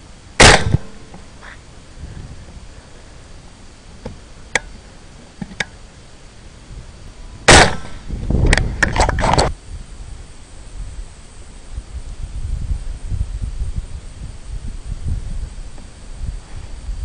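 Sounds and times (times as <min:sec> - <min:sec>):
rifle shot: 0:00.4 - 0:01.1, 0:07.5 - 0:08.1
sharp cracks: 0:00.4 - 0:01.2, 0:07.5 - 0:09.5.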